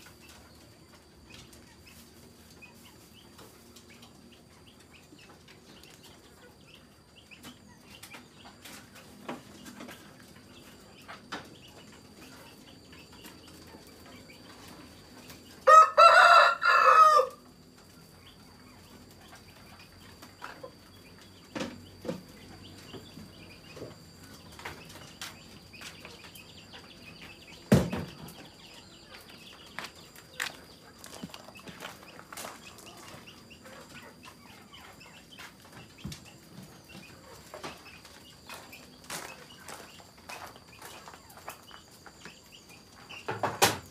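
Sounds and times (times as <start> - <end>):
rooster crowing: 15.6 - 17.4.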